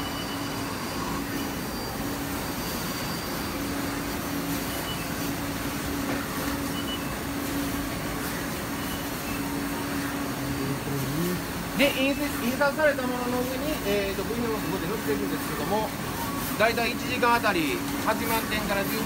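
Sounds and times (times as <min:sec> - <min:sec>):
machines whirring and humming: 0:00.0 - 0:19.0
low drone: 0:10.1 - 0:11.7.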